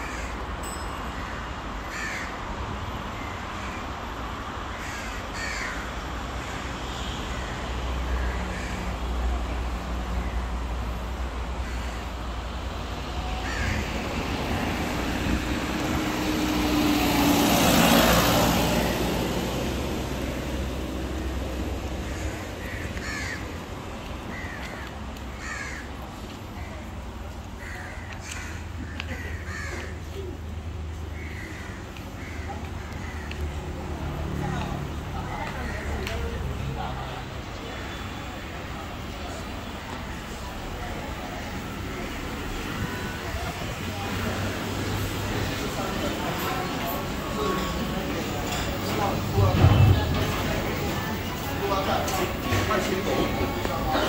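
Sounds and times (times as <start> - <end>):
crows cawing: 0.0 - 0.4, 1.2 - 2.4, 4.7 - 6.7, 8.1 - 9.0, 11.6 - 12.2, 13.2 - 14.1, 21.9 - 23.6, 24.3 - 26.0, 27.5 - 30.0, 31.0 - 33.6, 35.3 - 36.1
street traffic: 0.0 - 54.0
vehicle passing close by: 13.4 - 22.6.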